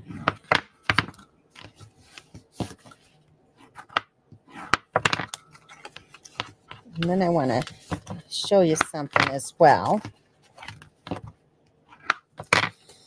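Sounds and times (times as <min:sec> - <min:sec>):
paper rustling: 0:01.5 - 0:03.2, 0:05.5 - 0:08.3.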